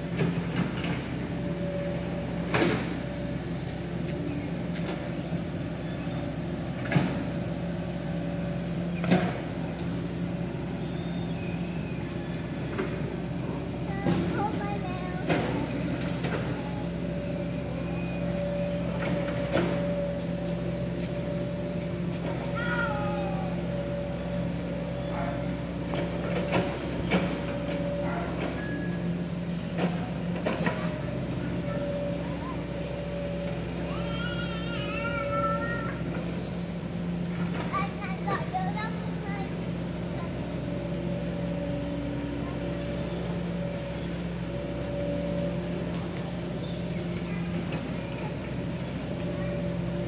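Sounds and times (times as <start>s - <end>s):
excavator diesel engine: 0.0s - 50.0s.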